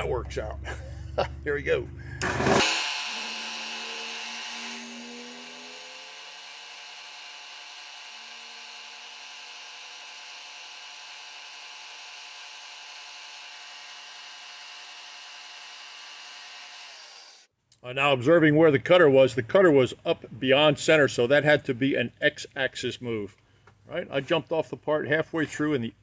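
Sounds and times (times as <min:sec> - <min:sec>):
milling machine whine: 0:02.2 - 0:17.4.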